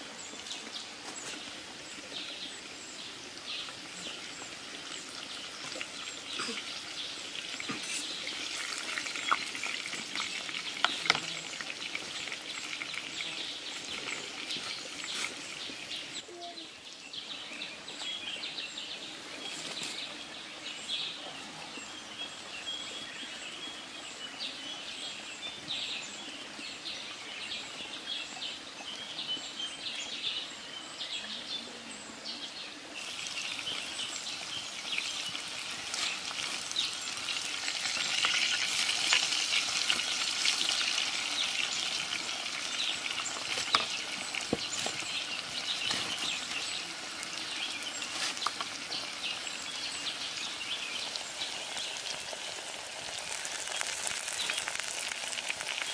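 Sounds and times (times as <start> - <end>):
birds calling: 33.0 - 55.9.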